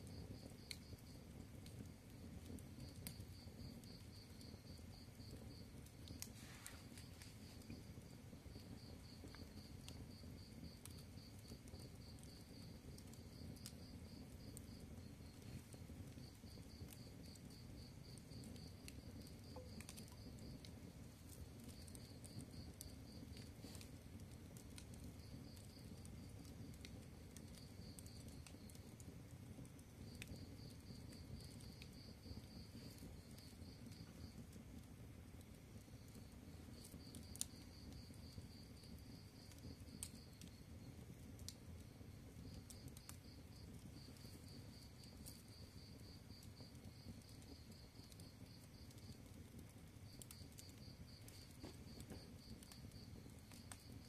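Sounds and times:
wood fire crackling: 0.0 - 54.0
cricket chirping: 2.2 - 23.8.

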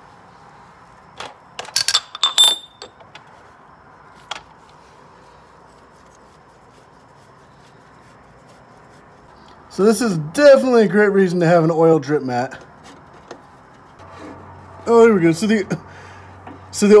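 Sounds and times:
metal clinks of wrench: 1.7 - 3.0.

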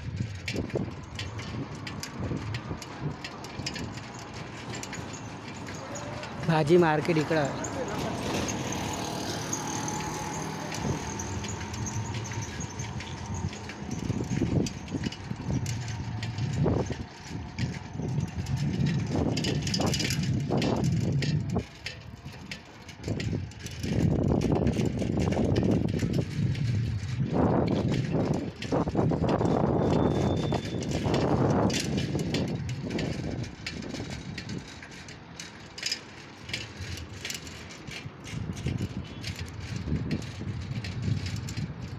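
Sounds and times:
wind gusts on microphone: 0.0 - 35.5, 36.4 - 41.9
ride noise: 0.0 - 41.9
small vehicle engine running: 7.1 - 35.5.

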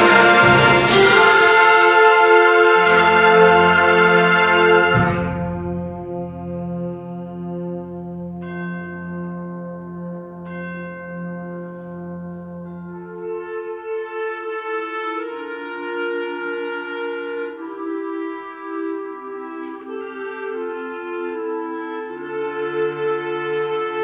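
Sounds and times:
concert band playing held chords: 0.0 - 10.8.

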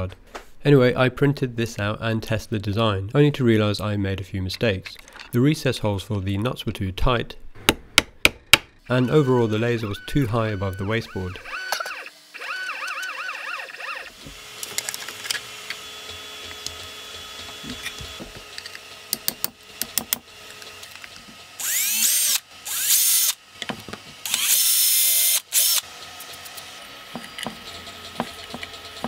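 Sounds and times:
parts clicking and knocking: 4.6 - 5.4, 11.5 - 13.2, 14.1 - 22.4, 23.6 - 24.6, 25.6 - 29.0
cordless drill whining: 8.9 - 23.4, 24.2 - 29.0.

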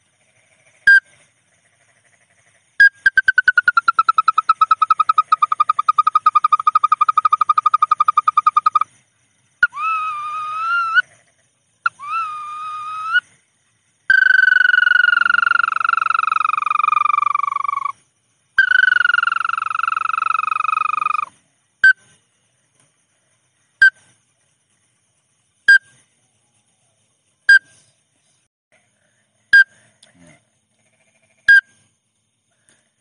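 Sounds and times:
bird whistling calls: 9.6 - 11.0, 11.9 - 13.2.

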